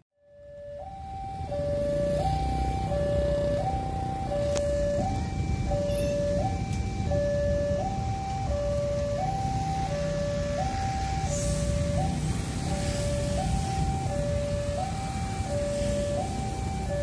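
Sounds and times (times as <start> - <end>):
level crossing two-tone alarm: 0.2 - 17.0
road traffic rumble: 0.2 - 17.0.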